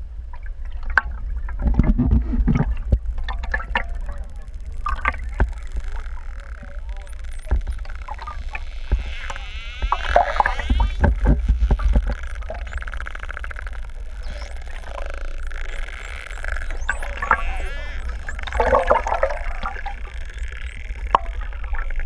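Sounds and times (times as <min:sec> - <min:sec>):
low rumble of water: 0:00.0 - 0:22.0
dolphin clicks: 0:02.6 - 0:22.0
dolphin whistles: 0:12.2 - 0:21.5.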